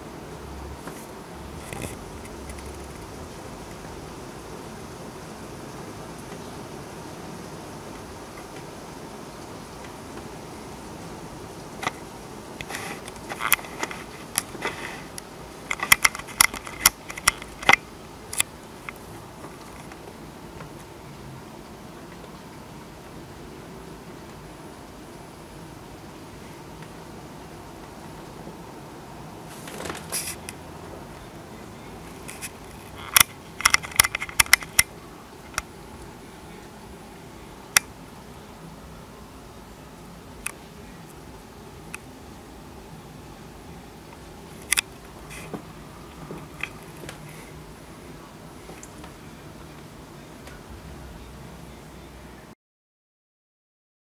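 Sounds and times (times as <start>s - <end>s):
heavy downpour hiss: 0.0s - 52.5s
sharp irregular clicks and taps: 12.6s - 20.0s, 32.2s - 34.9s.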